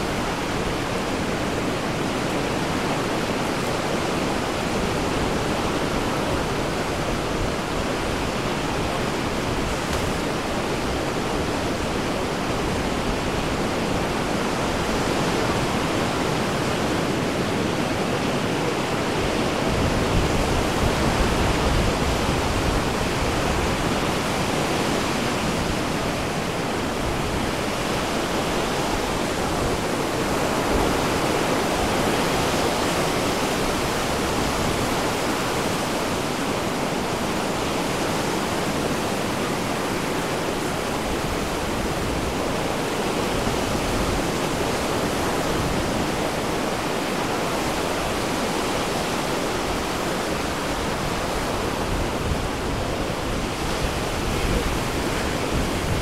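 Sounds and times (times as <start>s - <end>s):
ocean waves breaking on beach: 0.0s - 56.0s.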